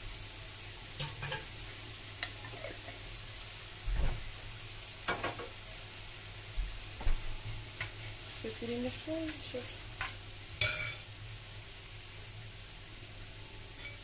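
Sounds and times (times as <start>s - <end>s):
vegetables sizzling in butter: 0.0s - 14.0s
spoon scraping a pan: 10.0s - 11.1s, 13.8s - 14.0s.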